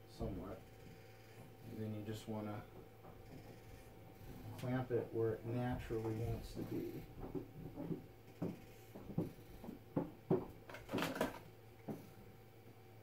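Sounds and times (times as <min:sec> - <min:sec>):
light knocks and clicks: 0:05.6 - 0:12.1.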